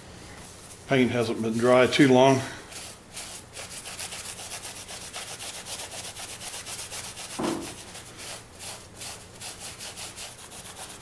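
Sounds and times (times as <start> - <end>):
paper towel scrubbing plywood: 2.7 - 11.0.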